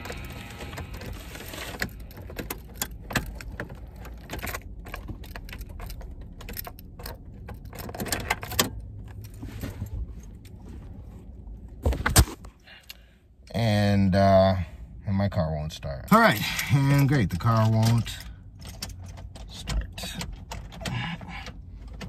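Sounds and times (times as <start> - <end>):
low steady rumble: 0.0 - 22.0
keys jangling: 1.8 - 9.4.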